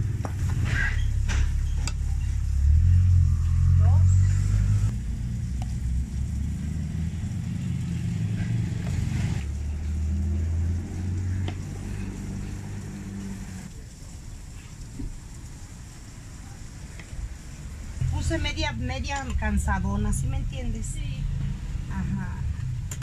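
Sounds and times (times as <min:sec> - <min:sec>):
vehicle engine rumbling: 0:00.0 - 0:23.0.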